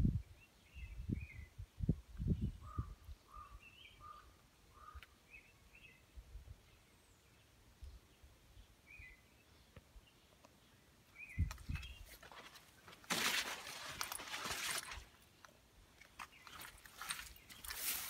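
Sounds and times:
faint bird chirps: 0:00.2 - 0:12.2.

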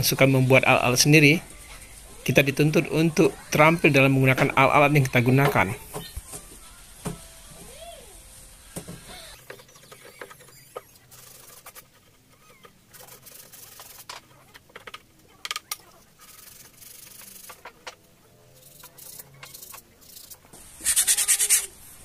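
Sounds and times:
sandpaper rubbing wood: 0:19.0 - 0:21.8.

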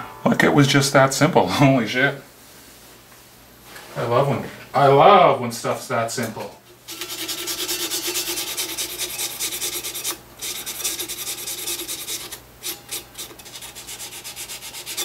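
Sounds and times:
file rasping on guitar nut: 0:06.9 - 0:15.0.

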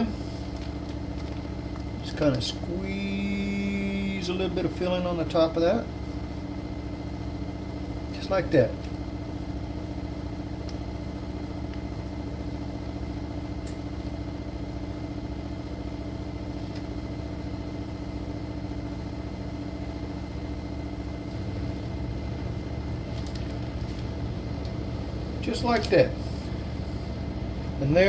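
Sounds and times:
steady machine hum: 0:00.0 - 0:28.0.

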